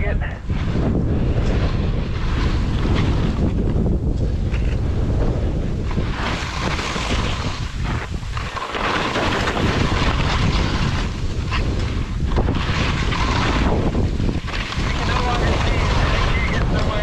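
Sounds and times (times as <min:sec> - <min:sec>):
wind rumble on microphone: 0:00.0 - 0:17.0
skis scraping over snow: 0:00.5 - 0:17.0.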